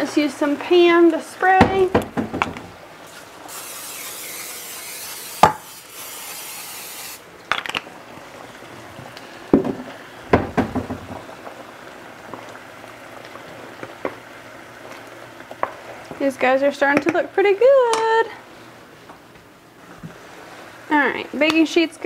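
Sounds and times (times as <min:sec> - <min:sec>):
cooking spray hissing: 0:00.0 - 0:07.4, 0:19.8 - 0:22.0
faint sizzling: 0:00.0 - 0:22.0
sharp knocks and clatters: 0:01.6 - 0:02.7, 0:09.6 - 0:11.2.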